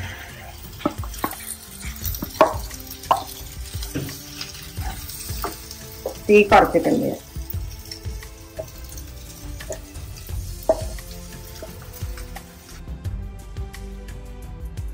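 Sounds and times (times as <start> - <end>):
wooden spatula scraping metal bowl: 0.1 - 7.2.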